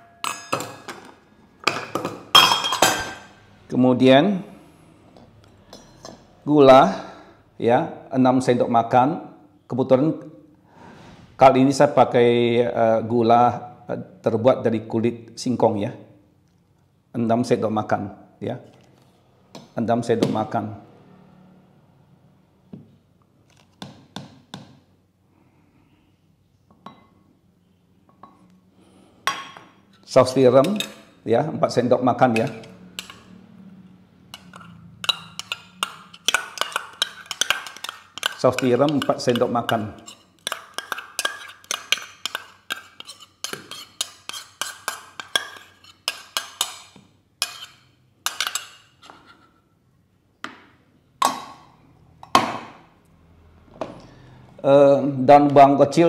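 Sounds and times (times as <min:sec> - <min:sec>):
spoon clinking steel bowl: 0:00.0 - 0:00.9, 0:02.3 - 0:03.3, 0:32.3 - 0:33.3, 0:34.4 - 0:48.8.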